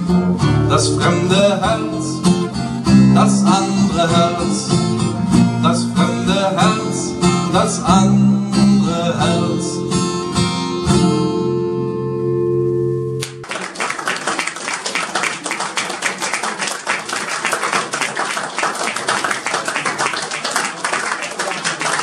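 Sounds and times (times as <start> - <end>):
acoustic guitars strumming: 0.0 - 13.5
audience applauding: 13.2 - 22.0.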